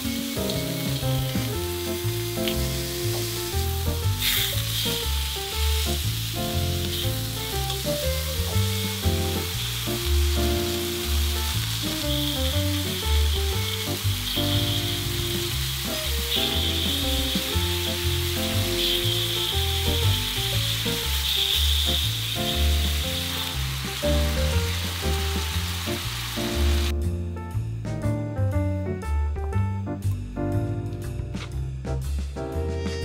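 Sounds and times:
meat sizzling on a griddle: 0:00.0 - 0:26.9
background music with bass line: 0:00.0 - 0:33.0.

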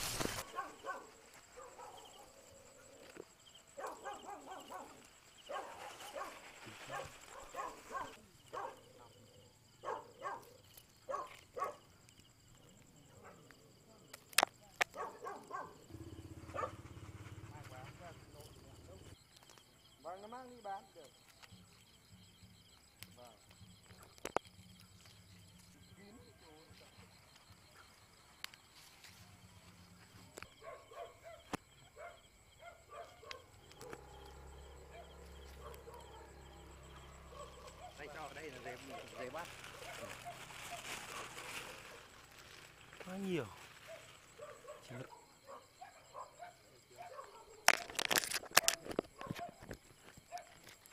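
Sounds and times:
hands brushing leaves: 0:00.0 - 0:01.5, 0:05.0 - 0:08.2, 0:38.3 - 0:44.3
insect chirps: 0:00.0 - 0:50.9
dog barking: 0:00.4 - 0:02.5, 0:03.8 - 0:09.2, 0:09.8 - 0:11.9, 0:13.1 - 0:13.5, 0:14.8 - 0:18.2, 0:30.4 - 0:42.1, 0:43.8 - 0:47.9, 0:48.6 - 0:49.7, 0:50.3 - 0:50.6.

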